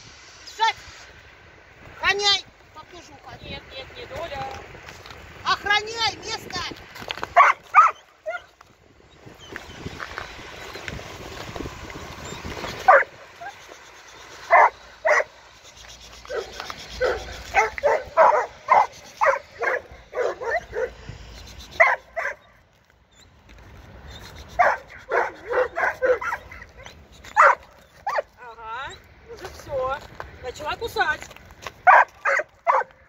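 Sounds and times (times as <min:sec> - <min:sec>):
dog barking: 0:07.4 - 0:08.5, 0:12.9 - 0:13.6, 0:14.5 - 0:15.3, 0:16.3 - 0:21.0, 0:21.8 - 0:22.5, 0:24.6 - 0:28.3, 0:31.8 - 0:33.0.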